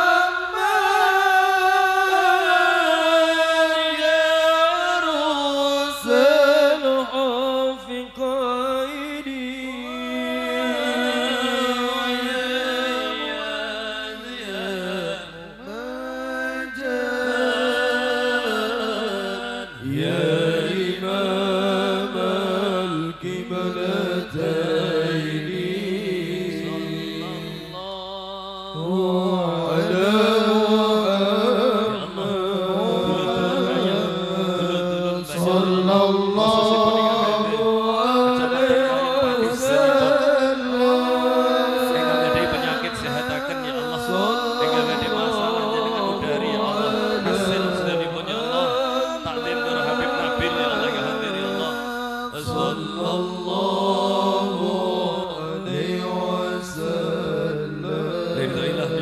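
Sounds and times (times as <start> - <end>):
voices chanting a melody: 31.3 - 59.0.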